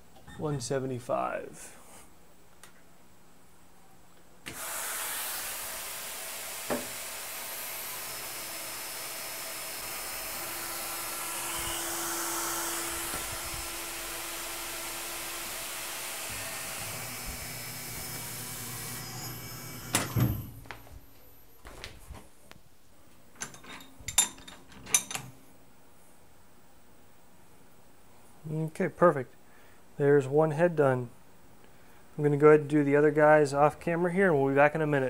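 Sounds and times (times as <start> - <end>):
mill spindle running: 4.6 - 20.7
loud machine clunks: 18.2 - 20.6.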